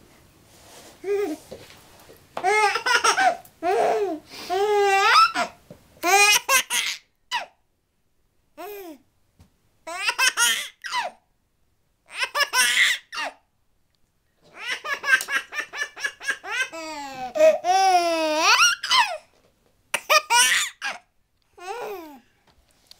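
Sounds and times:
baby giggling: 14.6s - 19.2s.

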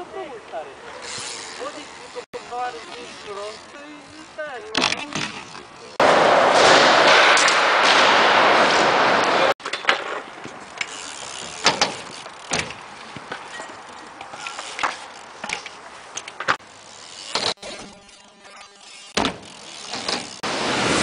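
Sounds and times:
bike knocking on ramps: 3.0s - 6.2s, 9.6s - 18.2s, 18.8s - 20.4s
loud rushing noise: 6.0s - 9.6s, 20.4s - 21.0s.

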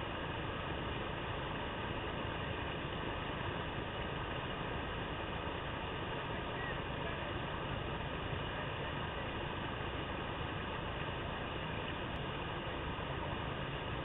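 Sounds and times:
whitewater rushing: 0.0s - 14.0s.

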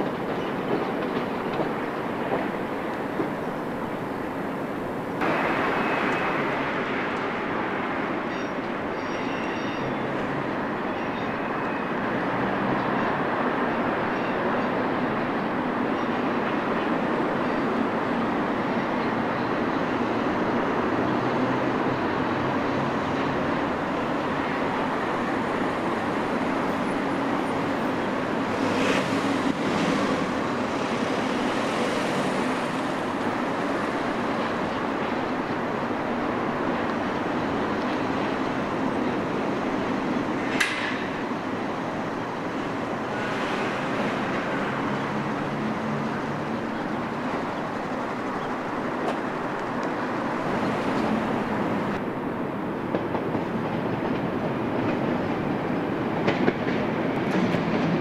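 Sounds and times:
distant road traffic: 0.0s - 58.0s
rail activity: 0.0s - 58.0s.

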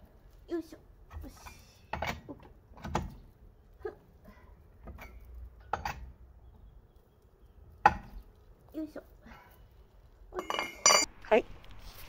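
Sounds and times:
metal parts clinking: 10.4s - 11.1s.

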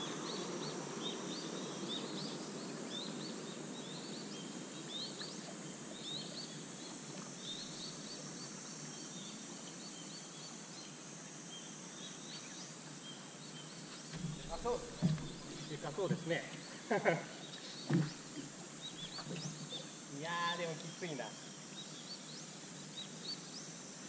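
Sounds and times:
steady outdoor hiss: 0.0s - 24.0s
birds chirping: 12.0s - 23.6s.

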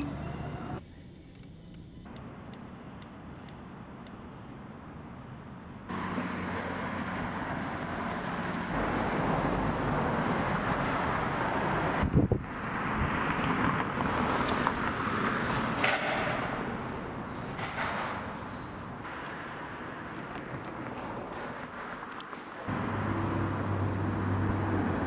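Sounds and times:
traffic: 0.0s - 25.0s
wind on microphone: 10.9s - 15.1s
low wind thumps: 11.8s - 14.9s.

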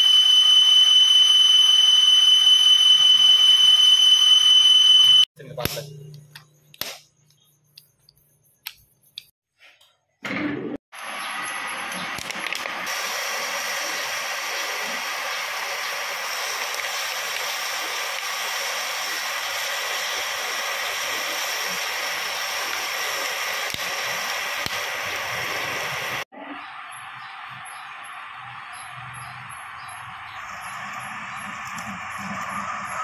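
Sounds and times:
drill cutting into spinning metal: 0.0s - 5.3s, 12.9s - 26.2s.

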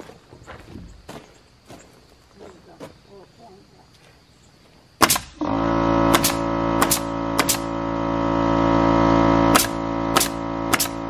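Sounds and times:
nail gun firing: 5.0s - 7.9s, 9.4s - 11.0s
air compressor humming: 5.1s - 11.0s.

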